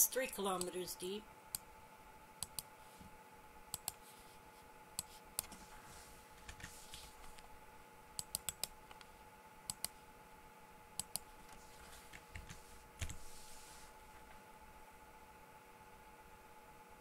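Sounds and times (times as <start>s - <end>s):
faint electronic whine: 0.0s - 17.0s
mouse and keyboard clicks: 8.2s - 9.1s.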